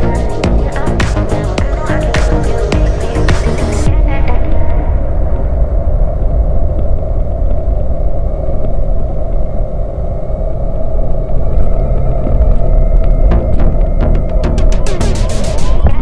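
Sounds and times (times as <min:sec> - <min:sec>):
off-road vehicle rumbling: 0:11.2 - 0:16.0.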